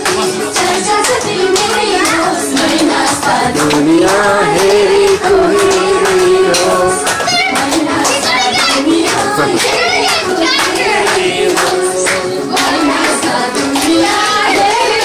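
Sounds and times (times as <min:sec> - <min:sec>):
hand clapping: 0:00.0 - 0:15.0
loud song with singing: 0:00.0 - 0:15.0
people's voices: 0:00.0 - 0:15.0.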